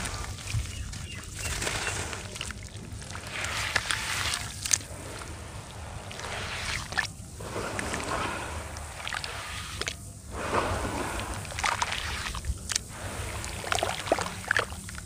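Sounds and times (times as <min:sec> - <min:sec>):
small crackles and cracks: 0:00.0 - 0:10.1
wet dirt squishing and sloshing: 0:00.0 - 0:15.0.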